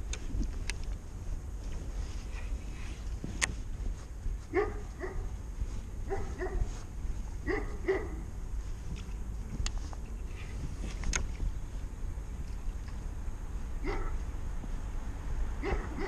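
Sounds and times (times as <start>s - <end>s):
wind rumble on microphone: 0.0s - 16.0s
dog barking: 4.5s - 5.3s, 6.1s - 6.7s, 7.4s - 8.3s, 13.8s - 14.2s, 15.6s - 16.0s.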